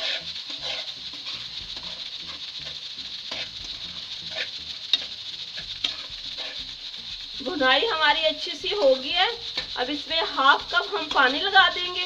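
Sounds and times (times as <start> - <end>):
faint sizzle: 0.0 - 12.0
metal spoon scraping a pan: 0.0 - 12.0.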